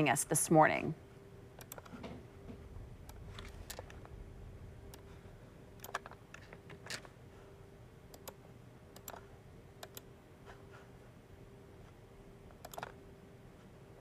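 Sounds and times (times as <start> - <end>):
faint steady hum: 0.0 - 14.0
computer keyboard typing: 1.6 - 1.9, 5.8 - 6.8, 9.0 - 9.2, 9.8 - 10.1, 12.6 - 13.0.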